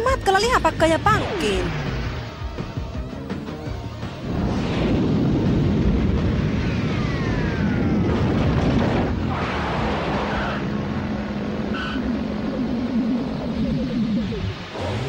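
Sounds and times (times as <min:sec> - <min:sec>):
spaceship rumbling roar: 0:00.4 - 0:15.0
falling whistle: 0:11.7 - 0:12.3.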